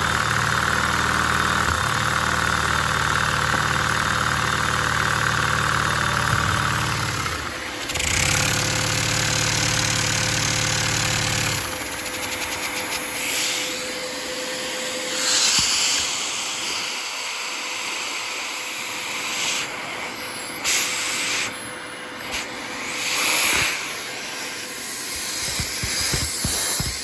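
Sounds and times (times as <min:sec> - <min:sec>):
suction air hiss of toy engine: 0:11.1 - 0:27.0.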